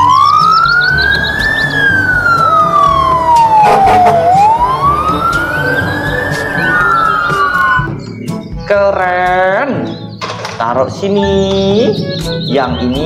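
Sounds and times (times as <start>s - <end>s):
fire truck siren wailing: 0.0s - 8.0s.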